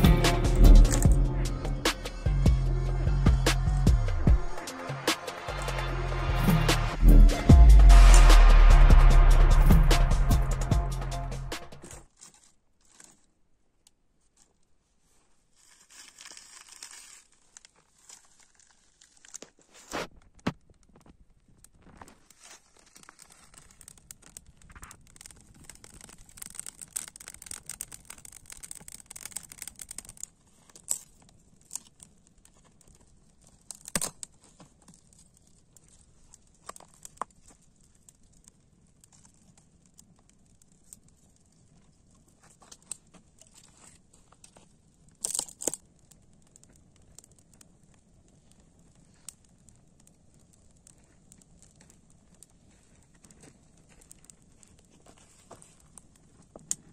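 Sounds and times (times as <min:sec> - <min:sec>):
dry twigs crackling in fire: 0:00.0 - 0:01.3, 0:11.8 - 0:13.4, 0:14.3 - 0:56.9
sticks snapping: 0:25.1 - 0:31.1, 0:45.2 - 0:45.8.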